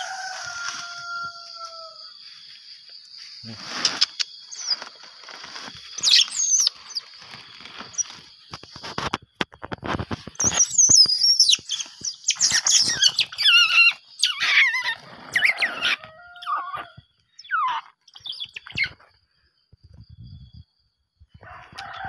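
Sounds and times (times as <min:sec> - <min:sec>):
otter pup squealing and chirping: 0:03.7 - 0:09.0, 0:10.4 - 0:19.1.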